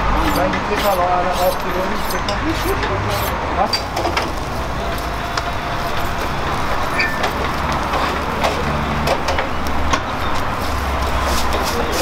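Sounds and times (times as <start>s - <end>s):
street noise: 0.0s - 12.0s
knife scraping meat: 0.1s - 3.4s.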